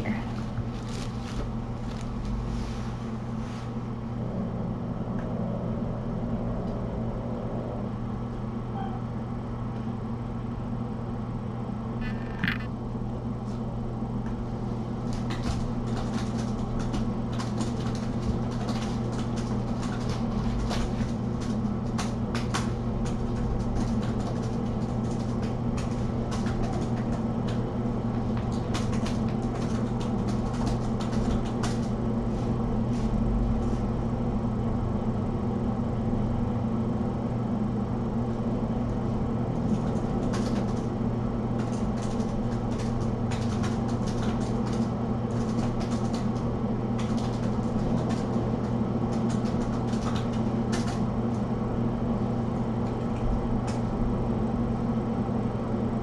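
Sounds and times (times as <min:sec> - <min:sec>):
kittens playing among toys: 0:00.0 - 0:02.9
low machine hum: 0:00.0 - 0:56.0.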